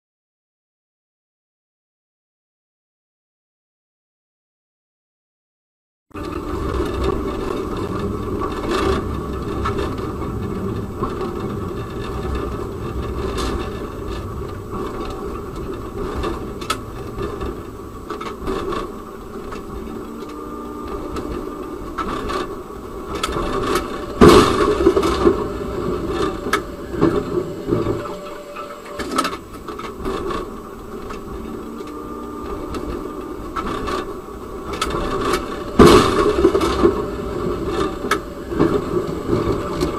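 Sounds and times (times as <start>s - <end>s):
tram rumble with rattles: 6.1s - 39.9s
loud bang: 23.1s - 29.6s, 35.7s - 38.0s.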